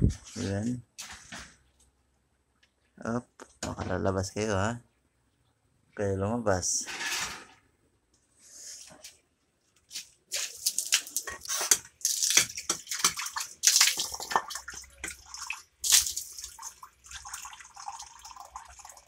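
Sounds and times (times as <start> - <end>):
water splashing and sloshing: 10.3 - 18.9.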